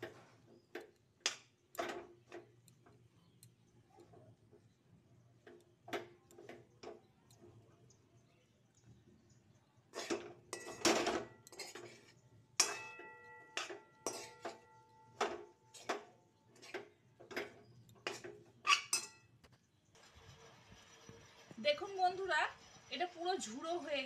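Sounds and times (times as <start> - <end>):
metal spoon scraping metal pan: 9.9 - 16.9, 18.0 - 19.2, 20.0 - 24.0.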